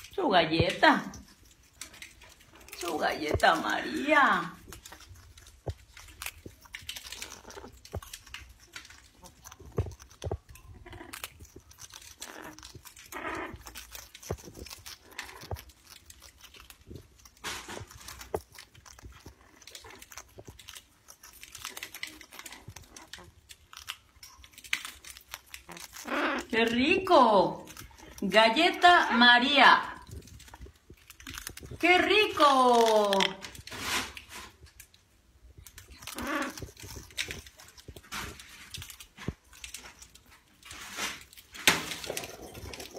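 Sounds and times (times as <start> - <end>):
parrot crunching biscuit: 0.0 - 42.9
soft parrot sounds: 25.5 - 26.7, 35.7 - 38.5.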